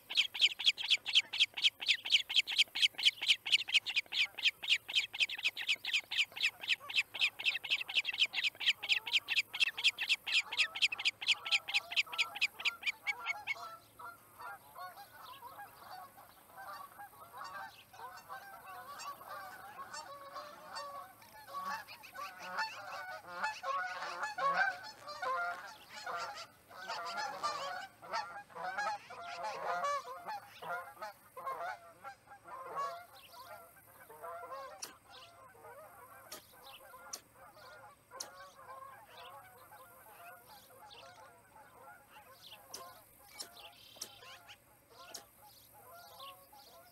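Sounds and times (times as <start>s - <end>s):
high-pitched bird alarm chirps: 0.0s - 13.7s
geese honking: 0.0s - 46.9s.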